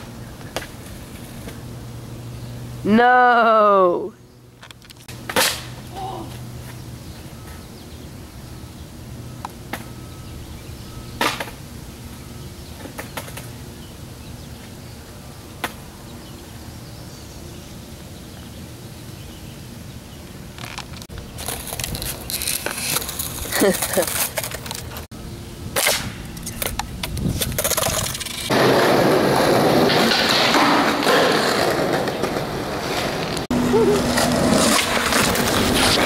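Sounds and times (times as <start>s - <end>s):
skateboard clacking on concrete: 12.8s - 13.5s, 25.8s - 33.4s.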